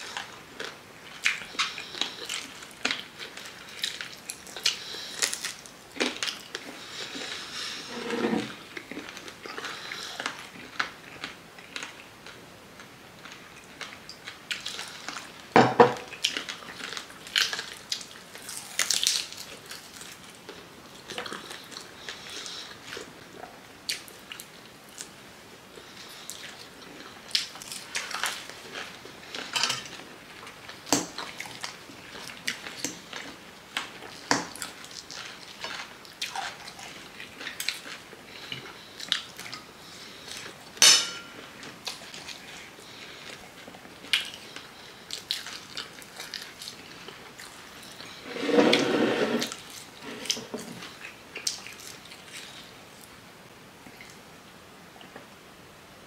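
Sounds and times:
chewing and lip-smacking: 0:00.2 - 0:07.4, 0:25.8 - 0:40.6, 0:41.6 - 0:48.2, 0:50.8 - 0:53.1
fork clinking on a plate: 0:40.8 - 0:41.4.

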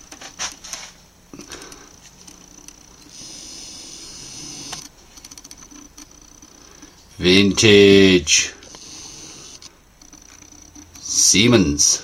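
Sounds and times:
steady hiss: 0:03.0 - 0:04.9, 0:06.7 - 0:09.7.

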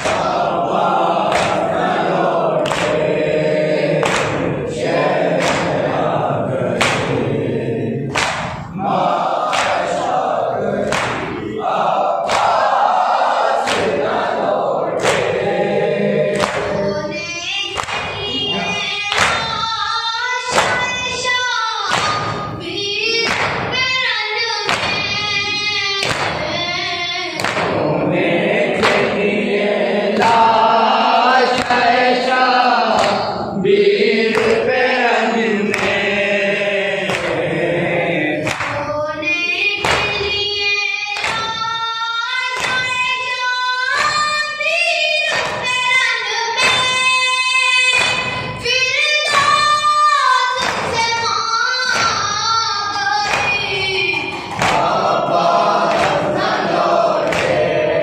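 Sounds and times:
group of voices singing in chorus: 0:00.0 - 0:58.0
young voice reciting a lament: 0:16.6 - 0:27.7, 0:38.8 - 0:54.7.

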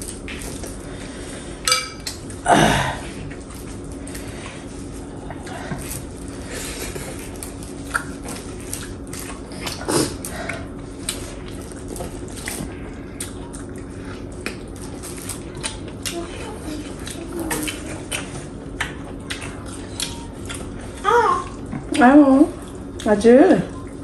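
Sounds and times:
steady low hum: 0:00.0 - 0:24.0
wet chewing and mouth smacks: 0:07.0 - 0:14.8, 0:16.9 - 0:21.0.

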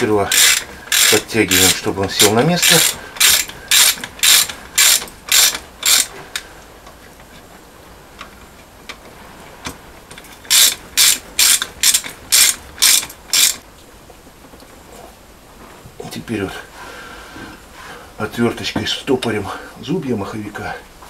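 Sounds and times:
ratchet wrench clicking: 0:00.0 - 0:06.1, 0:10.5 - 0:13.6.

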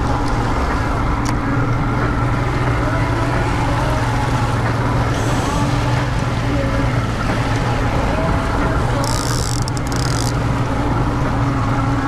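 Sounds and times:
outboard motor running: 0:00.0 - 0:12.0.

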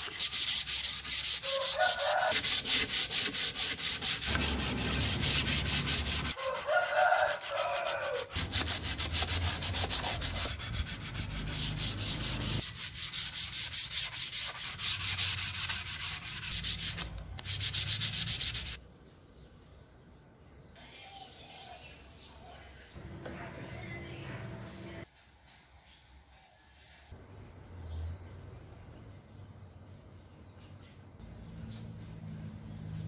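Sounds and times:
sandpaper rubbing on wood: 0:00.0 - 0:18.8.

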